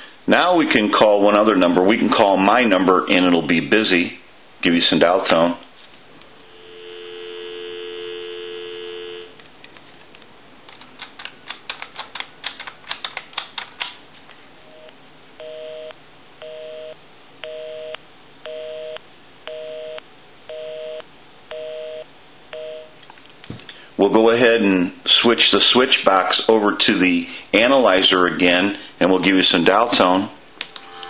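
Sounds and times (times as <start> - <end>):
busy signal beeps: 6.6 - 9.3, 14.7 - 22.9
telephone dial tone: 6.6 - 9.3.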